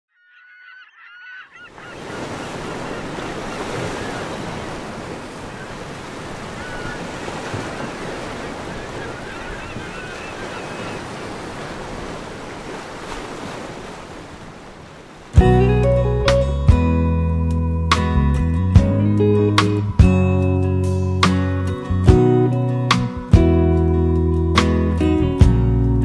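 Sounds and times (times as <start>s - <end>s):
faint bird calls: 0.1s - 4.6s, 5.3s - 11.5s
ocean surf washing: 1.7s - 15.4s.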